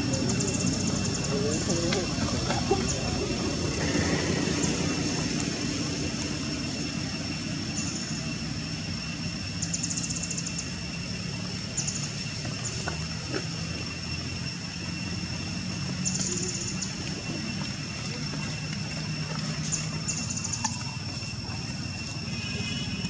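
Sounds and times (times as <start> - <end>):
constant rushing haze: 0.0 - 23.0
low steady drone: 0.0 - 23.0.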